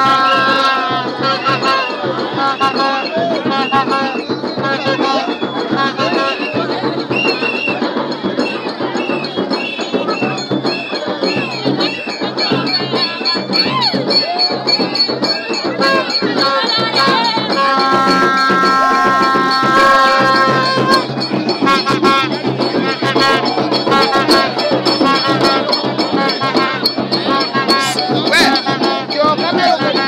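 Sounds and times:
crowd singing together: 0.0s - 30.0s
sharp rhythmic percussion: 0.0s - 30.0s
horn holding steady note: 15.8s - 29.2s.

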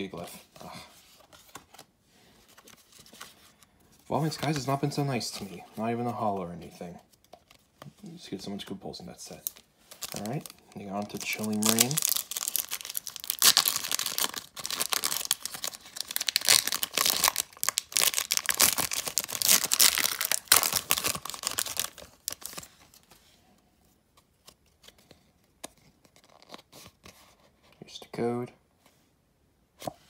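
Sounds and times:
foil wrapper tearing and crinkling: 9.5s - 22.7s.

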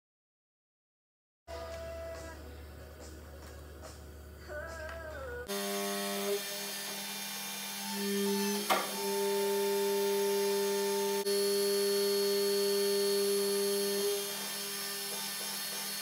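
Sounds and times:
hydraulic pump motor humming: 5.5s - 16.0s.

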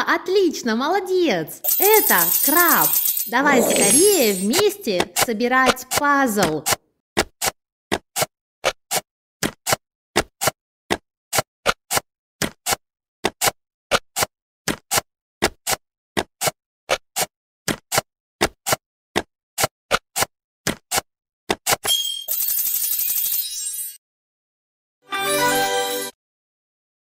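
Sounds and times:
bright sparkling chime: 1.7s - 4.6s.

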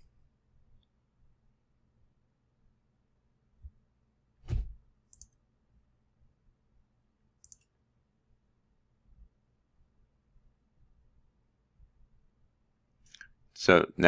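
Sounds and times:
dull thump: 4.4s - 4.8s
computer mouse clicks: 5.1s - 5.4s, 7.4s - 7.7s.

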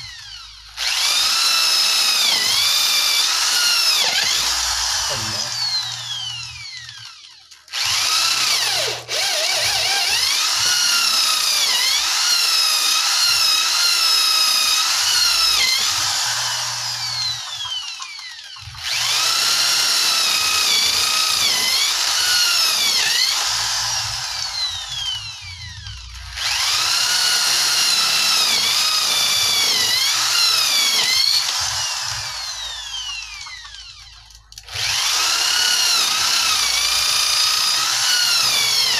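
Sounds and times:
electric drill boring into wood: 0.0s - 38.9s.

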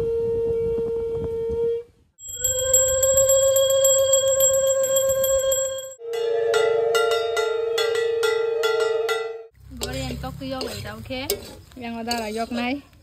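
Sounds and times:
spatula stirring food in wok: 9.7s - 12.8s.

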